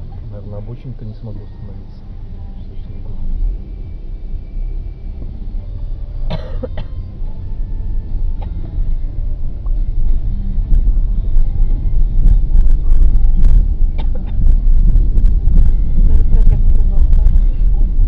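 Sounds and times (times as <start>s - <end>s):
car engine rumble from inside: 0.0s - 18.0s
short cough: 6.3s - 7.0s.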